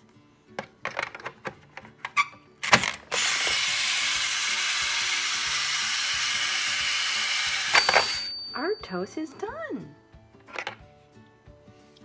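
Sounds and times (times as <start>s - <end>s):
toy toaster hissing: 3.1s - 8.3s.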